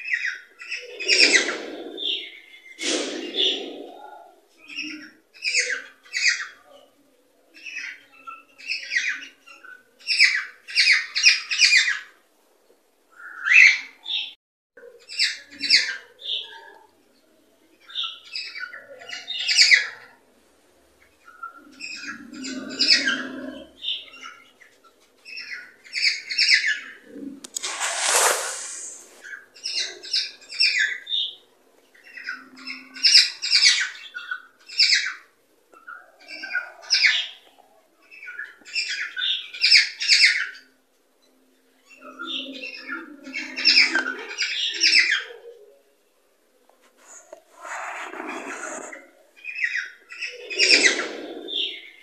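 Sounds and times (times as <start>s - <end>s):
scratchy bird squawk: 27.4s - 29.8s, 47.0s - 51.3s.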